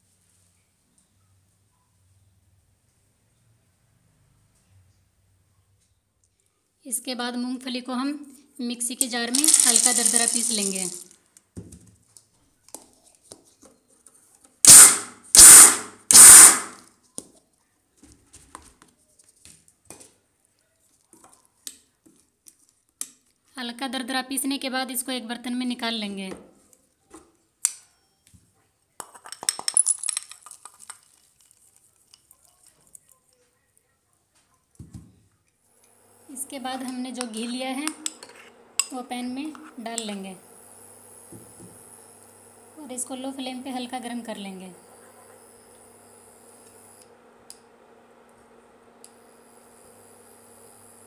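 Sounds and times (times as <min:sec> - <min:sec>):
peanut pieces rattling: 0:09.0 - 0:11.2, 0:29.0 - 0:33.2.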